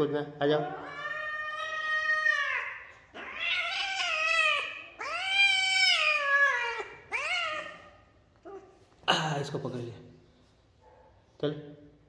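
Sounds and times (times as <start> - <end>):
kitten meowing: 0.6 - 8.6.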